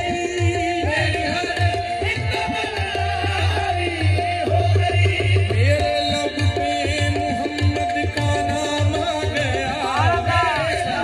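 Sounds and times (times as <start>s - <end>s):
harmonium melody: 0.0s - 11.0s
tabla beat: 0.0s - 11.0s.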